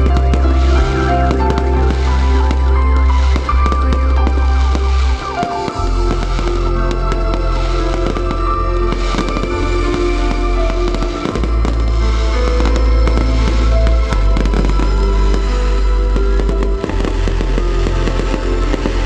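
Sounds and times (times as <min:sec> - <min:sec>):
fireworks bursting and crackling: 0:00.0 - 0:19.0
loud music with heavy bass: 0:00.0 - 0:19.0.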